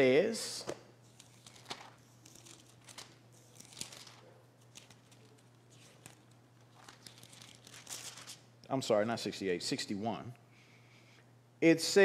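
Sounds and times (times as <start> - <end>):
book pages rustling: 1.1 - 8.4.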